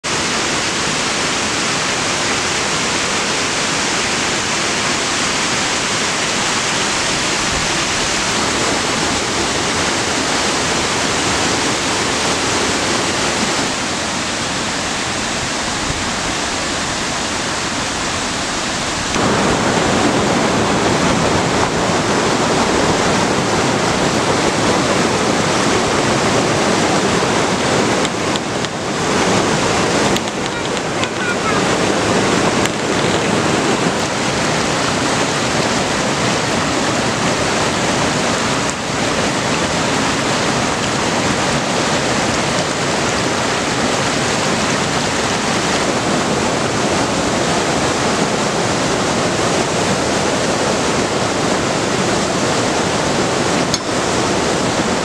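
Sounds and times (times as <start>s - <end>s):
stream rushing over rocks: 0.0s - 55.0s.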